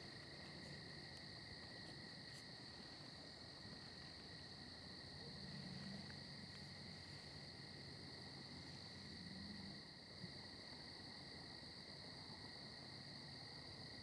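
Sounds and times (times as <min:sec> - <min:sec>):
crickets trilling: 0:00.0 - 0:14.0.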